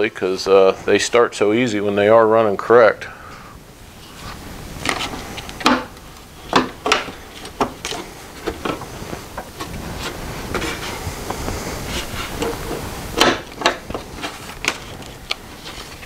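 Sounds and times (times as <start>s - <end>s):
plastic cover knocking and scraping: 4.8s - 16.0s.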